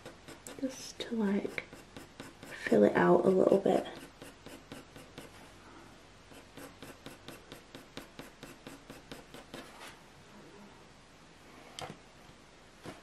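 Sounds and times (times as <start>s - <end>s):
pencil strokes on paper: 0.0s - 5.5s, 6.3s - 10.0s.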